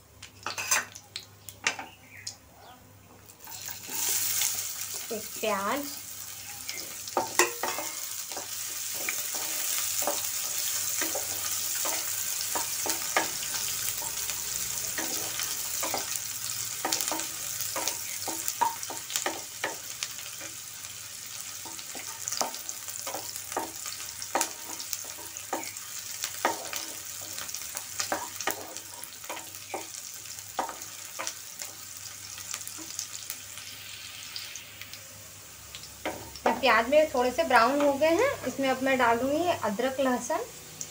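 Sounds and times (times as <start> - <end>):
onion sizzling in hot oil: 0.0 - 1.2, 3.3 - 40.9
wooden spoon scraping a pan: 7.2 - 13.3.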